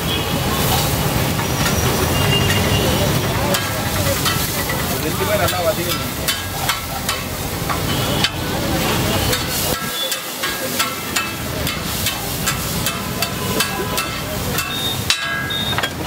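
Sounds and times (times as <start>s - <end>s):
onions and tomatoes sizzling in oil: 0.0s - 16.0s
metal spatula scraping griddle: 9.0s - 16.0s.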